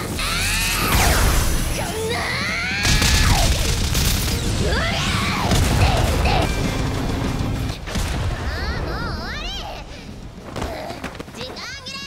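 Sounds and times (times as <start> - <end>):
crashing and booming impacts: 2.8 - 9.2.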